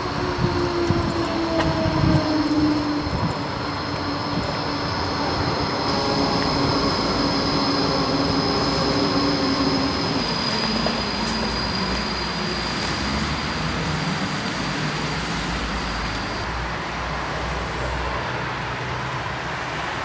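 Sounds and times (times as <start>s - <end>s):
high whine: 0.0s - 13.0s
steady rumbling noise: 0.0s - 15.8s.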